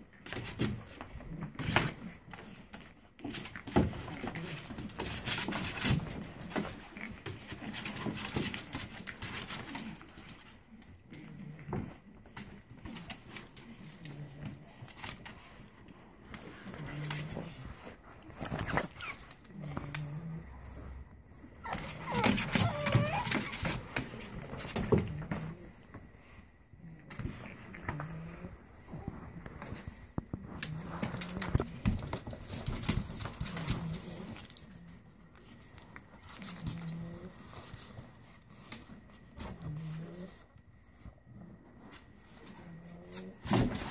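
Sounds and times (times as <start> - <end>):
puppies scrabbling on plastic: 0.0 - 43.9
puppy grunts: 16.3 - 25.8.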